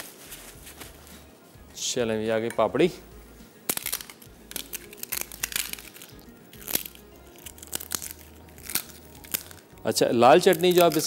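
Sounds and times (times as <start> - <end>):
fried wafers crunching and snapping: 3.7 - 9.7, 10.4 - 11.0.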